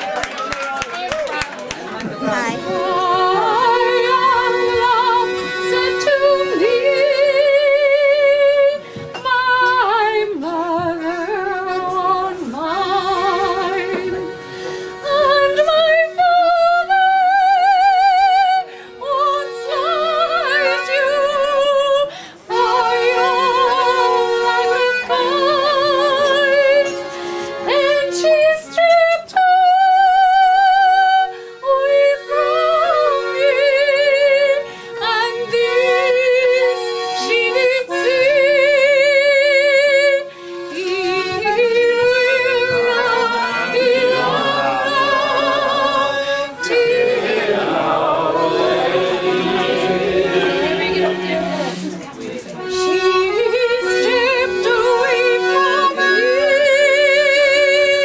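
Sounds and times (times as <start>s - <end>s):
sustained accompanying notes: 2.2s - 29.6s, 31.0s - 58.0s
person singing with vibrato: 9.2s - 51.9s.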